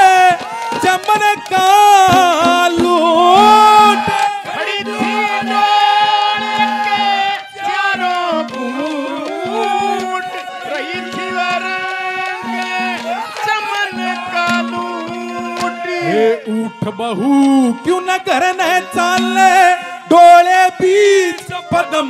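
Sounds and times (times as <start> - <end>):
harmonium chords: 0.0 - 22.0
hand drum beat: 0.3 - 7.2
man singing long note: 0.9 - 21.8.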